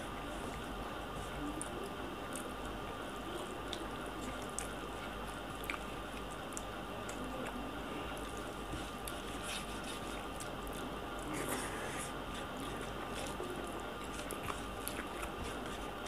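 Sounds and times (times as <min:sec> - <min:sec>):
soft wet clicks: 0:00.2 - 0:09.3.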